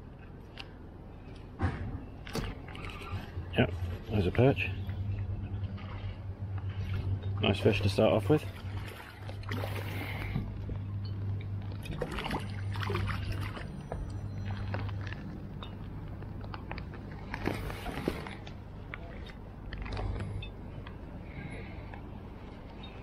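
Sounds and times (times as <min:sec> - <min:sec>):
steady low hum: 0:00.0 - 0:23.0
rustles and knocks handling fish: 0:08.7 - 0:21.0.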